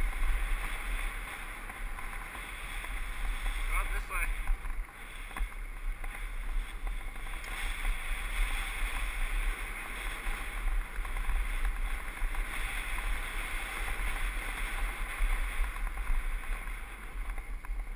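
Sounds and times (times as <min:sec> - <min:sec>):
bike tyres hissing on dirt: 0:00.0 - 0:17.9
wind buffeting microphone: 0:00.0 - 0:17.9.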